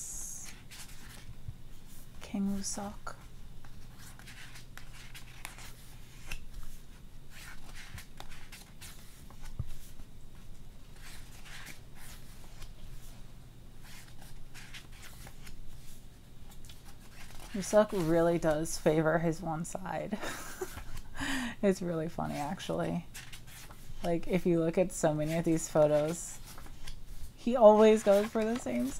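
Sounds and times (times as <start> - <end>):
faint low hum: 0.0 - 28.9
pages turning: 0.4 - 1.3, 3.6 - 13.1, 13.8 - 18.8, 22.3 - 28.9.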